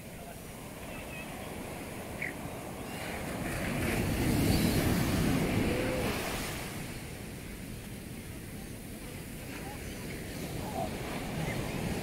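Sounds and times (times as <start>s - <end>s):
surf breaking on beach: 0.0s - 7.3s.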